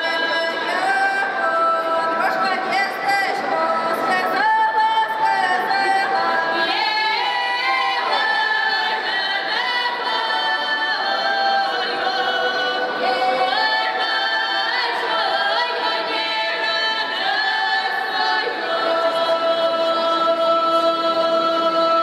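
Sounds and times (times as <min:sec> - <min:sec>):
women's choir singing a cappella: 0:00.0 - 0:22.0.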